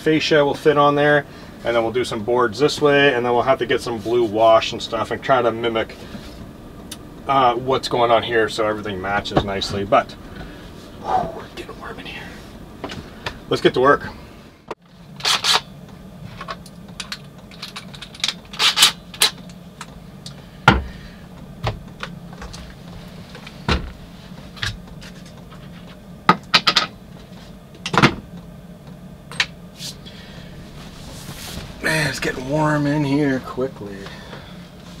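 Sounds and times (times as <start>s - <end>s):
steady low hum: 0.0s - 35.0s
clothing rustling: 29.8s - 32.5s.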